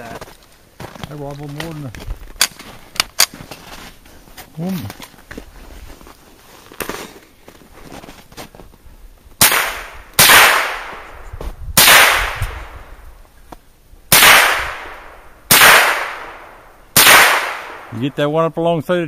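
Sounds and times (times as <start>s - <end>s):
rifle shots: 9.4s - 11.2s, 11.8s - 12.8s, 14.1s - 18.2s.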